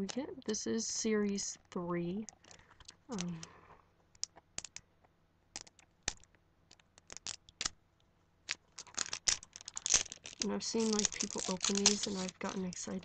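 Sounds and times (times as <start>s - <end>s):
plastic wrapper crinkling: 2.3s - 3.5s, 5.6s - 7.8s, 8.4s - 13.0s
plastic toy capsule clicks: 2.3s - 4.8s, 5.6s - 7.8s, 8.5s - 13.0s.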